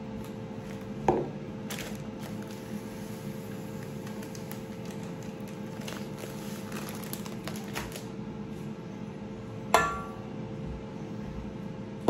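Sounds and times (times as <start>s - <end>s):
steady low hum: 0.0s - 12.0s
plastic bag crinkling: 1.6s - 2.9s, 3.5s - 8.2s.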